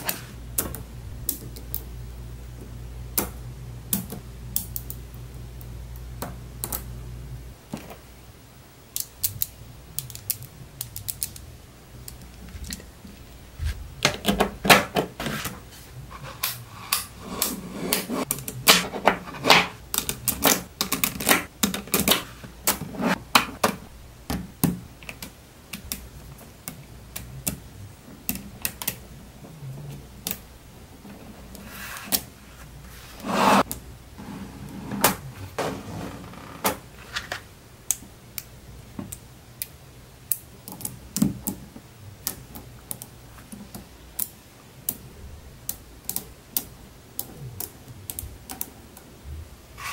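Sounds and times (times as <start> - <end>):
magnet balls clicking together: 8.9 - 12.9, 19.9 - 22.2.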